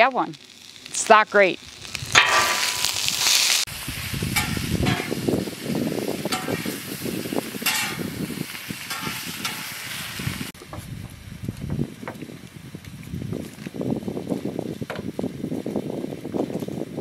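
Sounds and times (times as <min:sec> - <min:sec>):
onions sizzling on griddle: 0:00.0 - 0:17.0
metal spatulas scraping: 0:04.4 - 0:05.2, 0:06.3 - 0:06.8, 0:07.6 - 0:08.1, 0:08.9 - 0:09.8.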